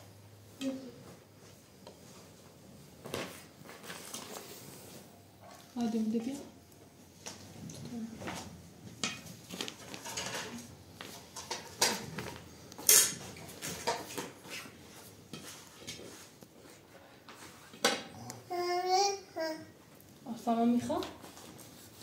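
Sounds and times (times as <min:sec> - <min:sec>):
metal dishes clinking and scraping: 0:09.0 - 0:14.4
child's voice: 0:18.2 - 0:19.8.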